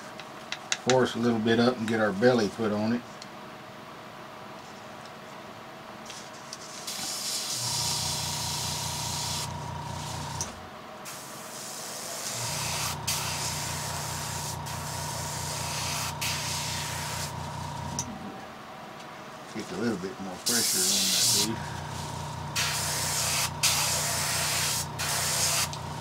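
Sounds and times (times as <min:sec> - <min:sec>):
airbrush hissing air: 0:06.8 - 0:18.0, 0:20.5 - 0:26.0
compressor motor humming: 0:07.5 - 0:10.7, 0:12.1 - 0:18.8, 0:20.5 - 0:26.0.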